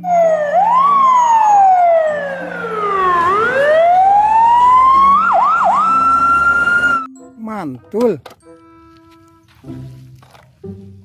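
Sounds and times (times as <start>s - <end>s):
fire engine siren wailing: 0.0s - 7.1s.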